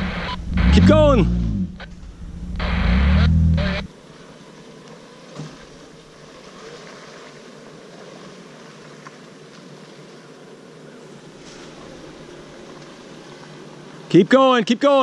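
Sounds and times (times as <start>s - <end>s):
car engine running: 0.0s - 3.9s
loud rumble and rush: 0.0s - 3.9s.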